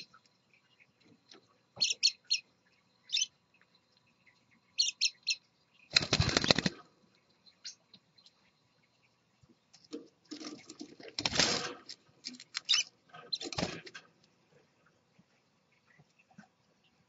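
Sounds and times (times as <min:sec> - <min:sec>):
birds fluttering: 0:05.8 - 0:07.0, 0:09.8 - 0:14.3.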